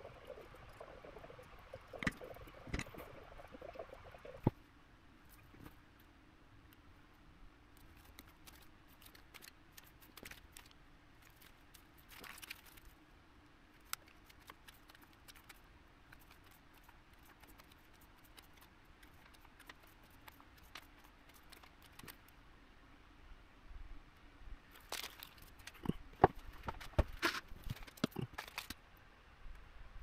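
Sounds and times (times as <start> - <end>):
plastic packaging crinkling: 11.3 - 12.9, 26.5 - 28.8.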